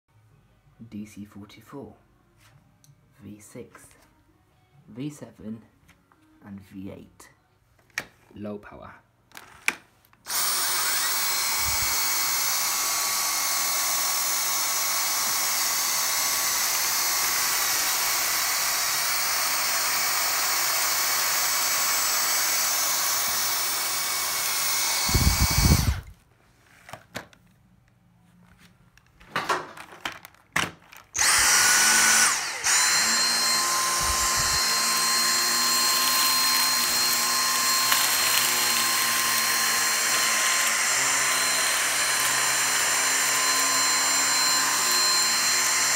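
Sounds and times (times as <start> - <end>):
vacuum cleaner motor whine: 10.3 - 26.1, 31.2 - 45.9.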